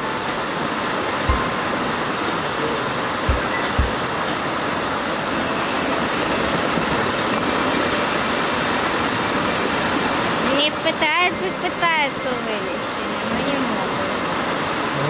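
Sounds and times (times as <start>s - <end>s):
river water rushing: 0.0s - 15.0s
low thumps: 1.3s - 2.4s, 3.2s - 4.6s.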